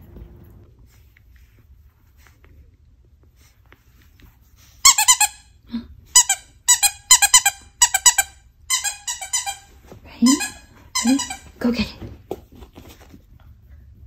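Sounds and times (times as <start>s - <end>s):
dog toy squeaking: 4.8s - 5.4s, 6.2s - 11.5s.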